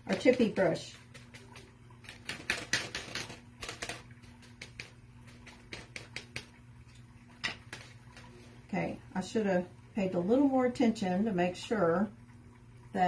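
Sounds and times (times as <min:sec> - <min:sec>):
brush dabbing with light taps: 0:00.0 - 0:08.5.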